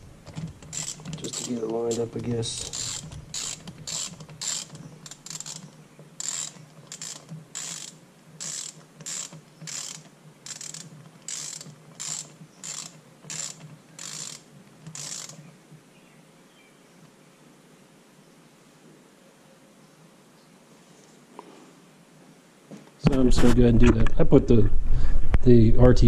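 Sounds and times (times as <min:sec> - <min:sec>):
hand ratchet clicking: 0:00.0 - 0:15.4.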